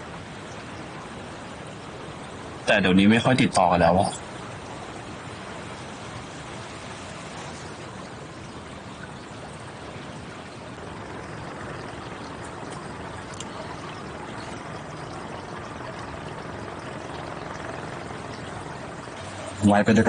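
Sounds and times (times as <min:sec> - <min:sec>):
pool water trickling: 0:00.0 - 0:20.0
faint ticks: 0:11.1 - 0:18.5.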